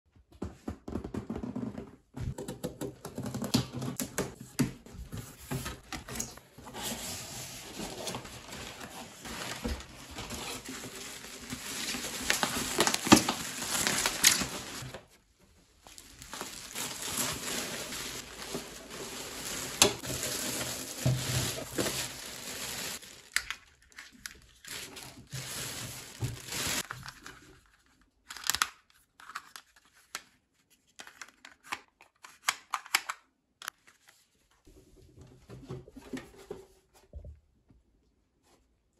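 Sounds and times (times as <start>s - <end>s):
bubble wrap and plastic bag crinkling: 6.7s - 15.2s, 15.8s - 27.6s.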